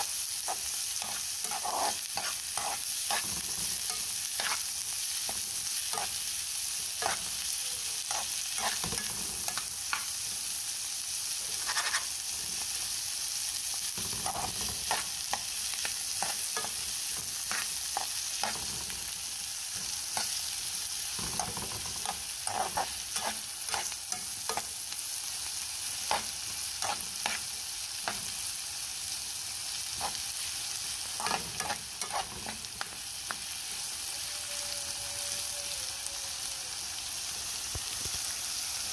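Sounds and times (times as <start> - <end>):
onions sizzling in frying pan: 0.0 - 38.9
metal spoon scraping pan: 0.4 - 6.3, 7.0 - 7.4, 8.1 - 10.1, 11.5 - 12.7, 13.9 - 15.5, 16.1 - 19.1, 19.7 - 24.7, 26.1 - 28.3, 29.8 - 30.3, 31.2 - 32.8.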